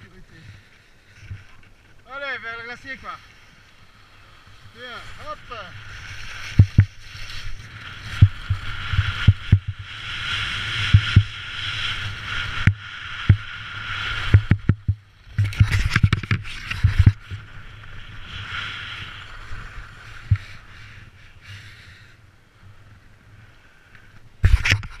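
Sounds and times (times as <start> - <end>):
skis scraping over snow: 0.0 - 22.0
low knocks and thumps: 6.6 - 7.0, 8.2 - 9.9, 10.9 - 11.4, 14.3 - 17.4.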